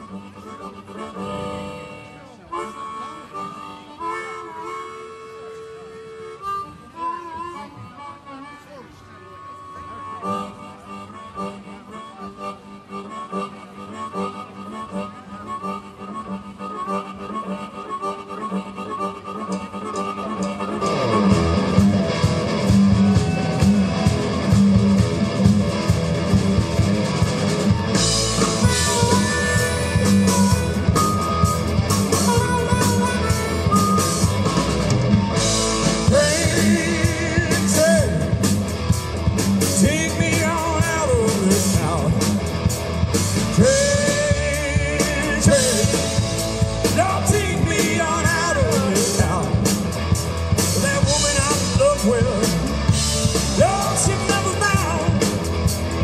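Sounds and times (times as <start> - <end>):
rock band playing: 13.0 - 56.0
wailing lead guitar lines: 13.0 - 56.0
lead voice singing: 35.8 - 38.6, 39.6 - 42.4, 43.4 - 49.9, 50.6 - 55.8.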